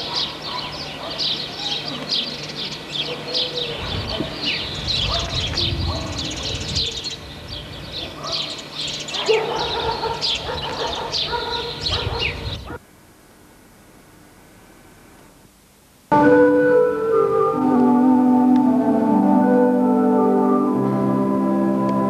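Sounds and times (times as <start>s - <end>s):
small birds chirping: 0.0s - 12.8s
faint steady hum: 0.0s - 22.0s
low rumbling microphone noise: 3.7s - 8.2s, 9.7s - 12.8s.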